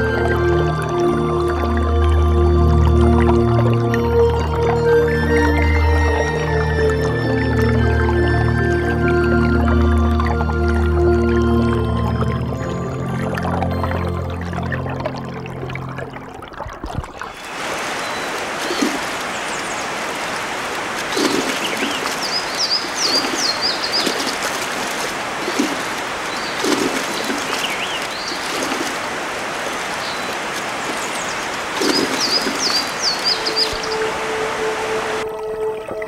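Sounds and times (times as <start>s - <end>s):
stream running over rocks: 0.0s - 36.0s
songbird chirping: 17.3s - 20.4s, 21.0s - 29.0s, 29.8s - 35.3s.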